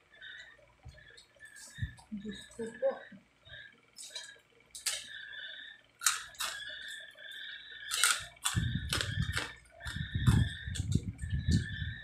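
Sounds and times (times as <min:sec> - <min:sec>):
crispy pork skin crunching: 0:04.0 - 0:05.1, 0:06.0 - 0:07.0, 0:07.9 - 0:10.9.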